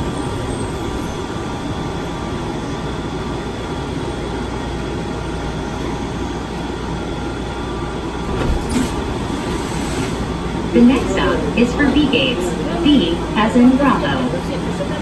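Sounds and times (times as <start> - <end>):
train rumble and hum: 0.0 - 15.0
train door clunk: 8.2 - 11.3.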